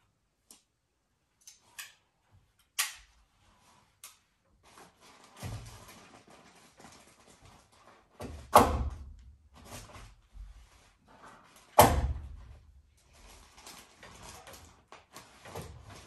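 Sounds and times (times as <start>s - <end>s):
sharp bangs on wooden framing: 8.4s - 9.1s, 11.8s - 12.3s.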